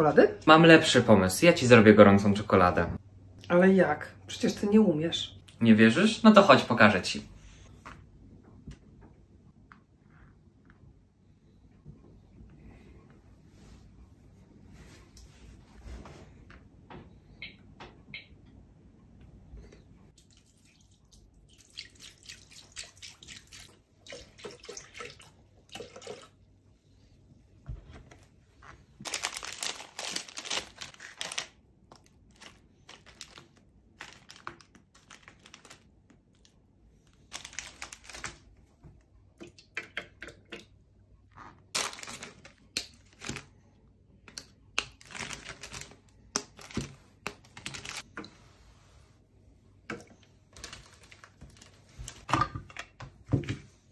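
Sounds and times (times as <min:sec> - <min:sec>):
wrapper crinkling: 0:29.0 - 0:36.5, 0:37.1 - 0:38.5, 0:41.7 - 0:43.6, 0:44.8 - 0:48.1, 0:50.5 - 0:52.3.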